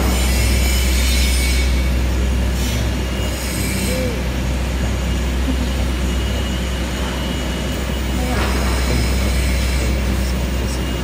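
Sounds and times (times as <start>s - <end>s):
metallic scraping and squealing: 0.0s - 5.1s
low workshop hum: 0.0s - 11.0s.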